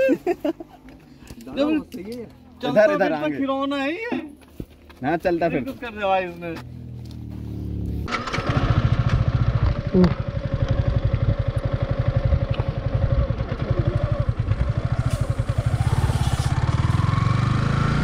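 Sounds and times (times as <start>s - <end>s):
motorcycle engine idling: 6.9s - 16.9s.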